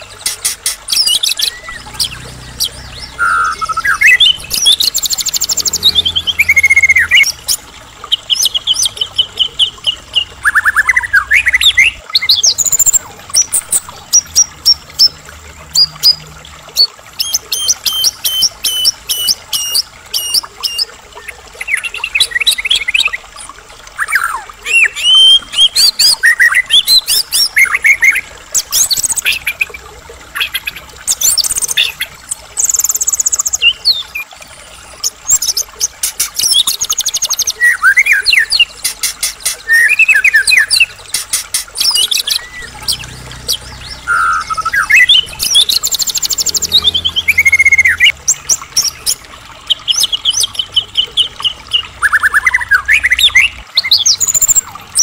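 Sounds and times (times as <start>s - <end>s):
songbird whistles and trills: 0.0s - 7.6s, 24.0s - 29.7s, 35.3s - 55.0s.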